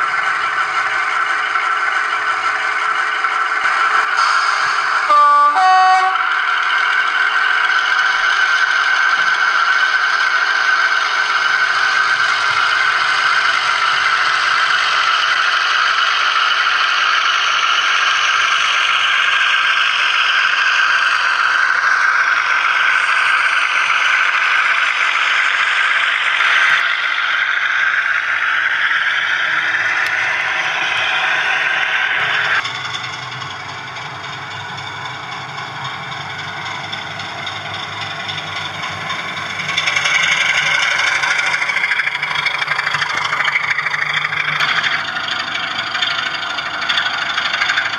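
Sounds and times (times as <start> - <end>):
model diesel engine sound from speaker: 0.0 - 47.9
model wheels rattling over track: 29.7 - 47.9.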